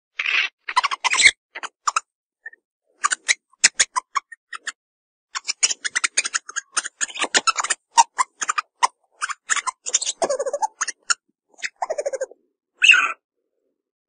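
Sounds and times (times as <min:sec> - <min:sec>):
meerkats chirping: 0:05.4 - 0:13.2.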